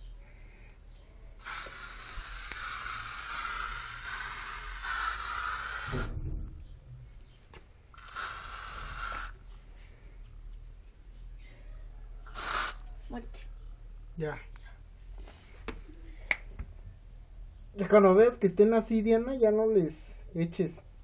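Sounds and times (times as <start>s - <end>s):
aerosol can spraying: 1.4s - 6.2s, 7.9s - 9.4s, 12.3s - 12.8s.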